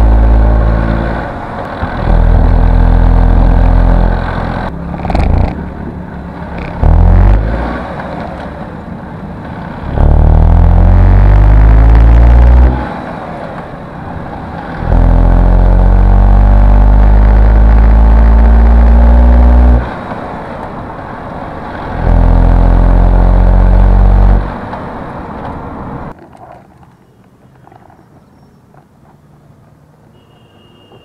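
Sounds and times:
car engine pulling under throttle: 0.0s - 26.2s.

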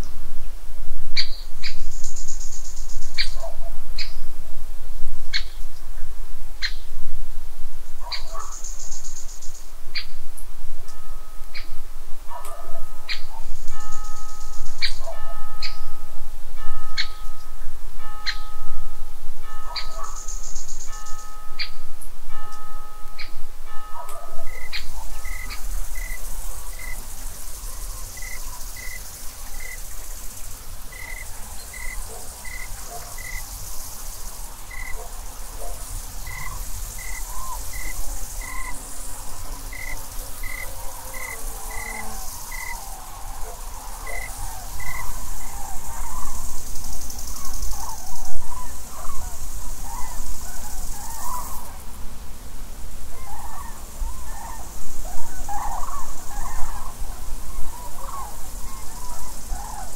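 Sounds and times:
insects chirring: 0.0s - 59.9s
cranes calling: 19.5s - 21.8s, 22.4s - 51.8s, 53.1s - 59.9s.

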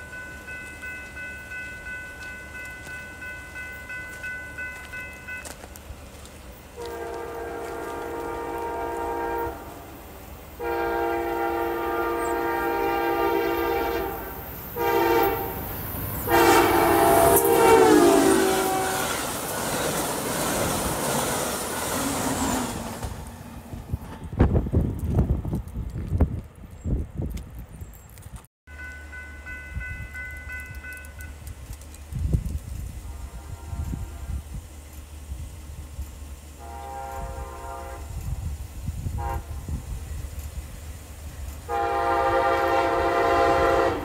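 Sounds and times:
train rushing past: 0.0s - 25.9s, 28.8s - 44.0s
train horn blasts: 6.8s - 9.9s, 10.6s - 19.3s, 33.0s - 34.5s, 36.6s - 38.2s, 39.1s - 39.8s, 41.6s - 44.0s.

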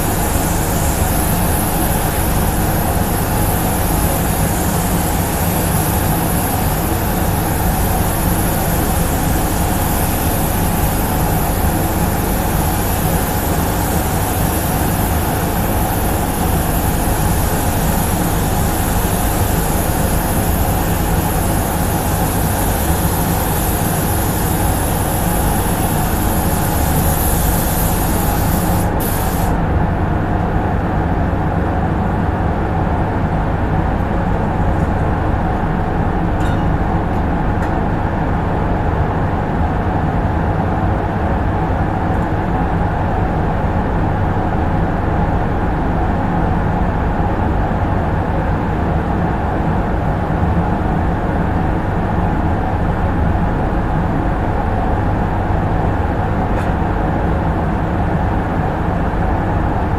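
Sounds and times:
paint spray gun hissing: 0.0s - 29.6s
spray booth fans humming: 0.0s - 59.9s.

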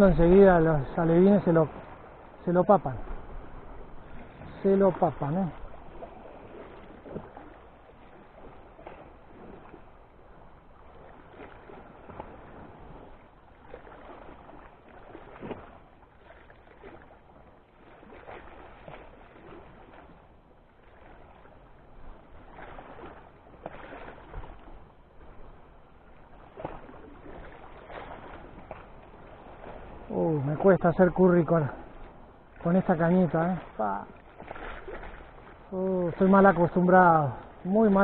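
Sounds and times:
seawater splashing on rocks: 26.4s - 31.5s.

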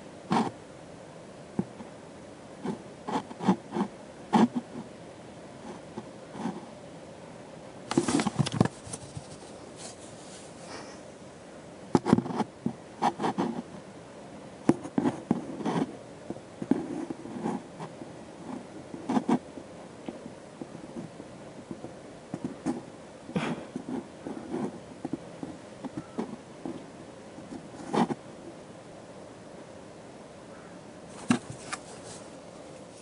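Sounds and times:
cat scraping inside cardboard box: 31.1s - 32.4s.

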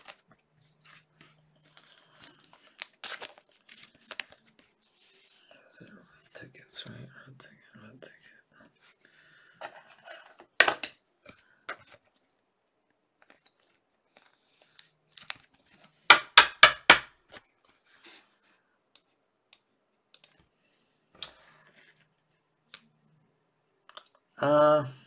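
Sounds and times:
card pack wrapper tearing: 1.6s - 4.4s
cards clicking and tapping: 16.1s - 17.4s.

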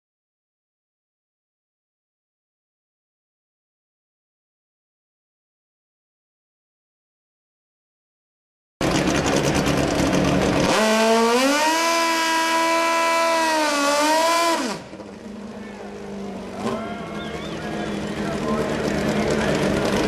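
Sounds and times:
motorcycle engine revving: 8.8s - 20.0s.

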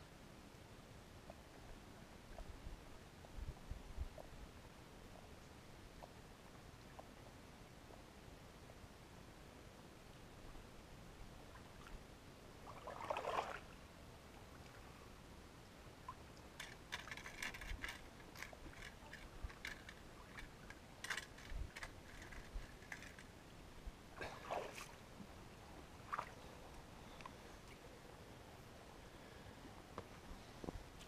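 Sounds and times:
splashes in shallow water: 12.6s - 13.7s, 24.2s - 25.0s, 26.0s - 26.5s
crunches and clicks on rocks: 16.6s - 23.3s.

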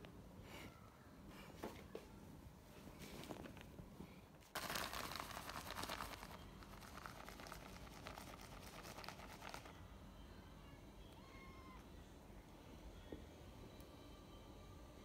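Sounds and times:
crinkly rustling with crackles: 2.7s - 9.8s.

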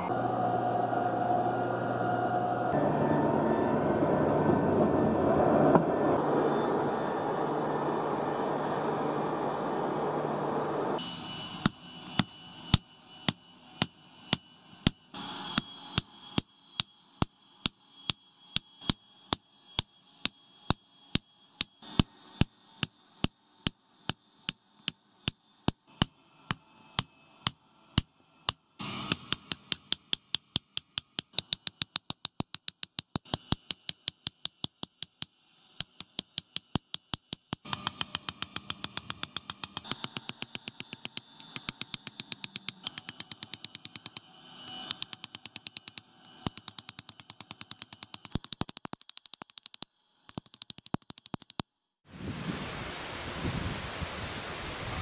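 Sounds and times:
hammer striking metal on anvil: 21.1s - 48.2s.

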